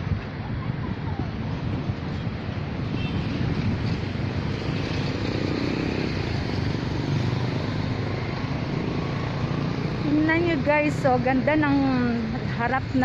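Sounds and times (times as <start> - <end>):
steady traffic rumble: 0.0 - 13.0
vehicle engine passing: 3.4 - 11.5.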